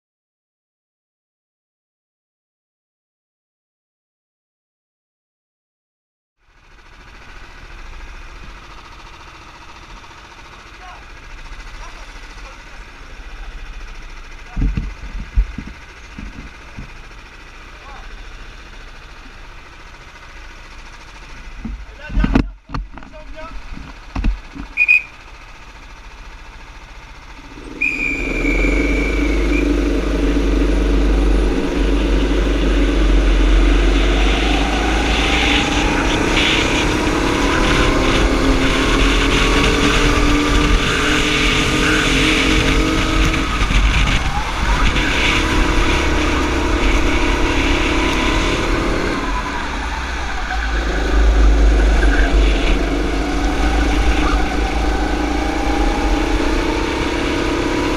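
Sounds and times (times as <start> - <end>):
racing kart engine revving: 6.5 - 57.9
wind rumbling over microphone: 28.4 - 57.9.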